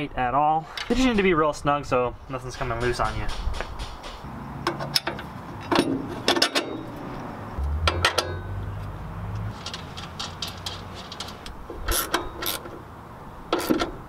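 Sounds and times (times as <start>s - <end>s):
low rumble: 7.5s - 9.6s.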